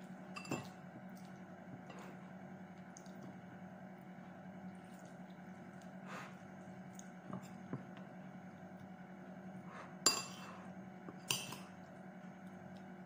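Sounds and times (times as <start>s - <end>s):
low steady hum: 0.0s - 13.0s
ceramic dishes clinking: 0.4s - 0.7s, 10.1s - 10.4s.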